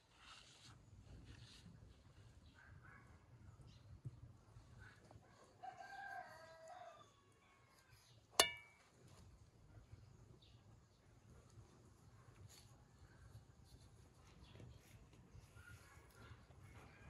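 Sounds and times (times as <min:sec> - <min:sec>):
rooster crowing: 0:05.6 - 0:07.2
sharp metallic clink: 0:08.4 - 0:08.8.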